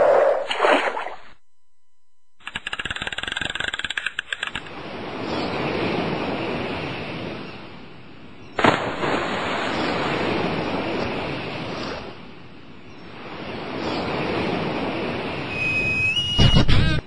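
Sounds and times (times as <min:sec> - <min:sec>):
sea waves washing in: 0:04.6 - 0:16.2.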